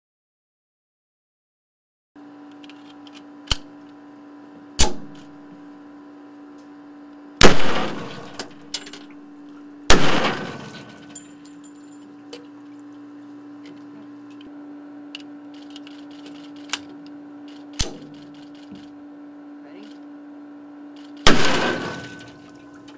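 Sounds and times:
steady equipment hum: 0:02.2 - 0:22.9
loud pistol shots ringing: 0:04.8 - 0:05.2, 0:07.4 - 0:08.6, 0:09.9 - 0:11.2, 0:21.2 - 0:22.4.

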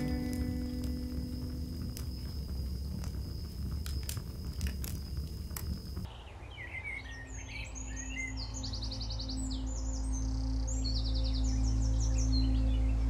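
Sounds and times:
high whine: 0:00.0 - 0:06.1
wood crackling and popping in stove: 0:00.0 - 0:06.1
small birds chirping: 0:00.0 - 0:13.0.

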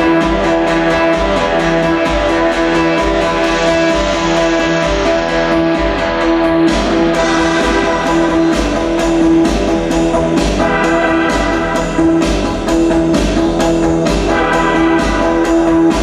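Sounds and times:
live synthesizer music: 0:00.0 - 0:16.0
low bass pulse: 0:00.0 - 0:16.0.

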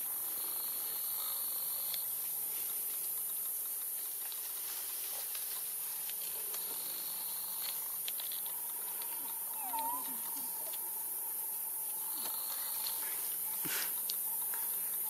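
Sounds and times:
forest ambience hiss: 0:00.0 - 0:15.0
faint ticks: 0:01.2 - 0:13.1.

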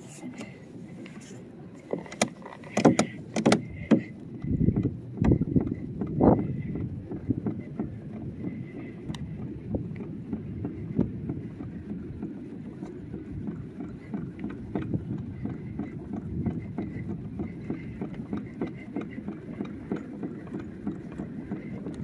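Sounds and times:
water noise along plastic hull: 0:00.0 - 0:22.0
small clicks and knocks: 0:00.4 - 0:06.2.

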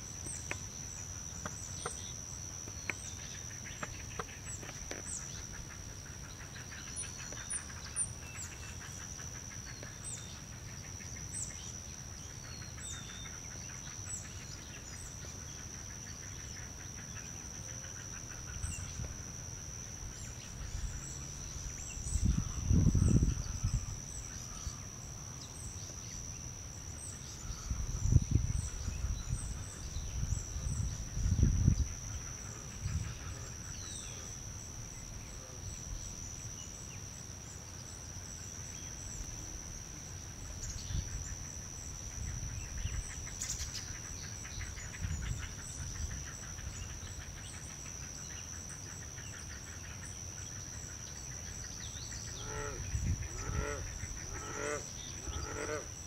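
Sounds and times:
low rumble on microphone: 0:20.5 - 0:24.8, 0:27.4 - 0:33.9.

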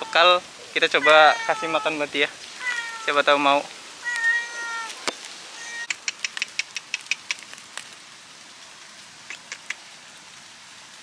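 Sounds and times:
cat meowing: 0:00.0 - 0:03.4, 0:04.0 - 0:05.9
quick sharp clicks: 0:05.8 - 0:07.5.

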